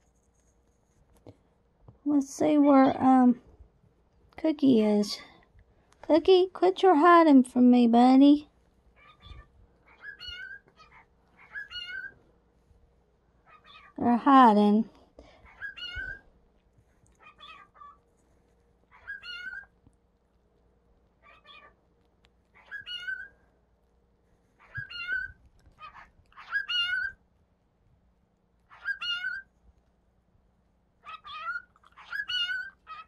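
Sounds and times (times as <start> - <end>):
cockatiel chirping calls: 9.0 - 12.2, 15.5 - 16.2, 17.2 - 18.0, 18.9 - 19.7, 21.2 - 21.7, 22.5 - 23.3, 24.6 - 27.2, 28.7 - 29.5, 31.0 - 33.0.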